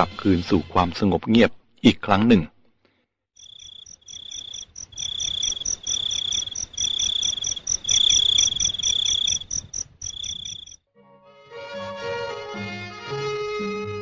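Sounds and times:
insects chirping: 3.4 - 10.8
instrumental music: 10.9 - 14.0.

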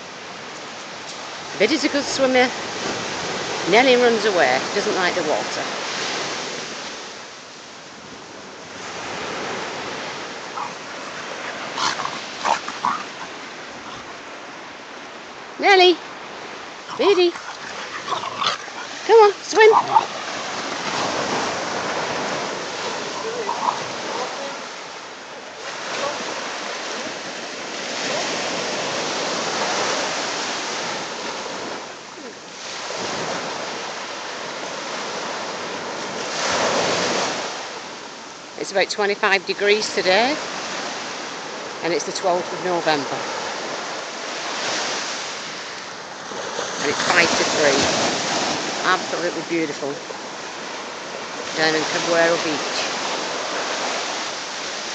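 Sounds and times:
small waves breaking on sand: 0.0 - 54.9
surf washing on shore: 0.0 - 54.9
dogs growling and yipping: 10.2 - 14.4, 16.7 - 24.3.

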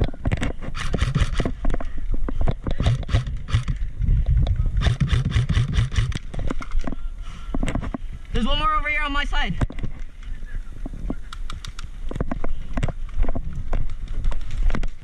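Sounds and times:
constant low rumble: 0.0 - 8.8.

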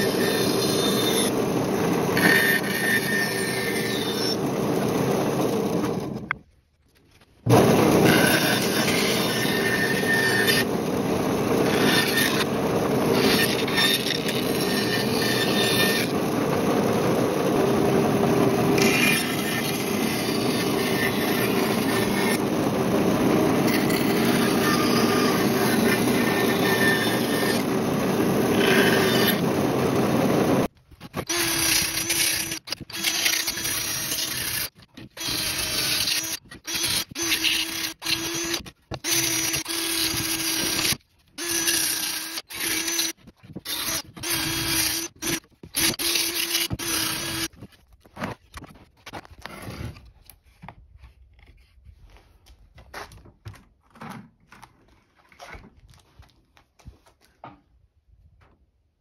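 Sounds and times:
bandsaw cutting wood: 0.0 - 6.4, 7.5 - 47.6
cordless drill spinning brush wheel: 0.0 - 6.4, 7.4 - 48.7.

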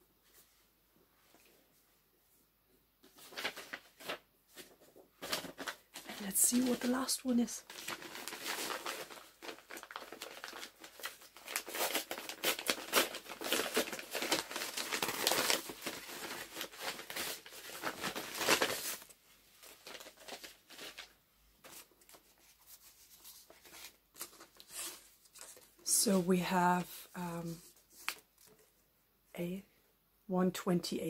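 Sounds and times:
paper packaging crinkling: 3.1 - 25.9.

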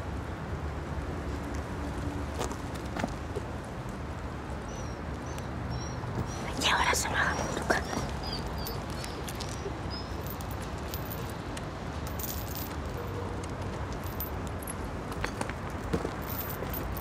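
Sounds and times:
bird chirp: 4.7 - 10.2.

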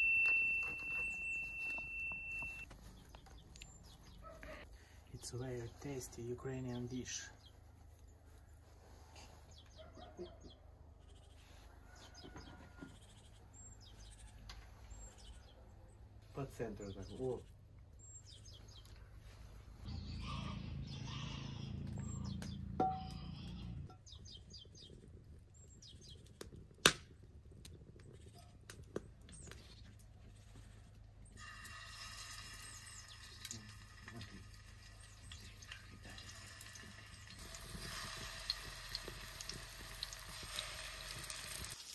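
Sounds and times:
faint high bird chirps: 0.0 - 4.4
small birds chirping: 1.0 - 26.8, 27.6 - 31.4, 32.4 - 39.6.

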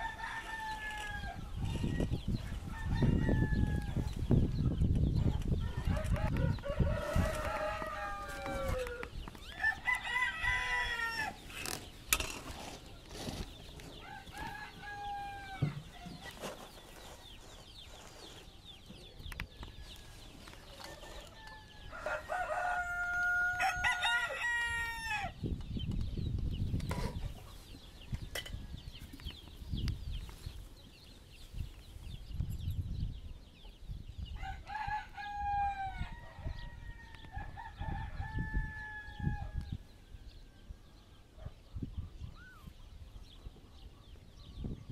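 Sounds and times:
rooster crowing: 0.0 - 4.1, 5.6 - 11.4, 14.0 - 16.0, 21.2 - 25.4.

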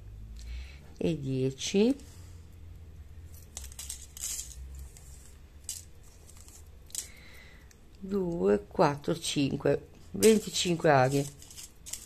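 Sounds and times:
paper packet crinkling: 10.2 - 12.0.

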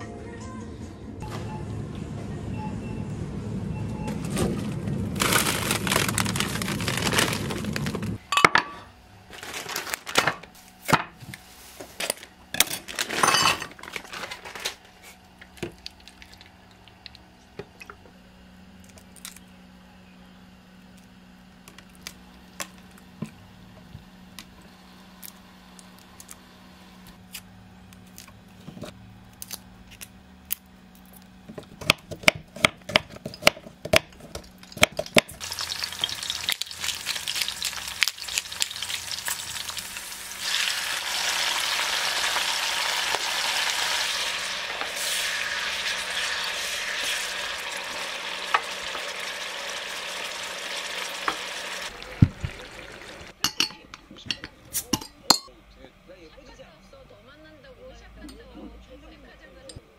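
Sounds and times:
kitchen utensils clinking: 8.3 - 8.9, 12.0 - 14.5, 53.3 - 55.5.

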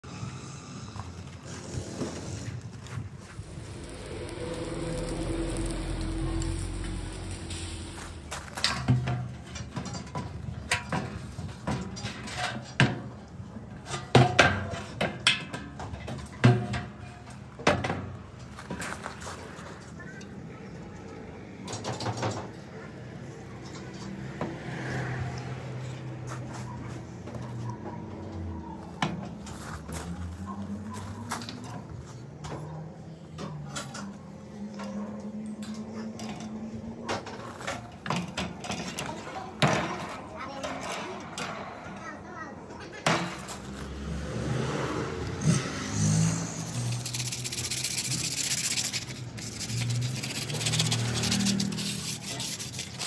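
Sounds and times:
low hum: 3.1 - 9.5.

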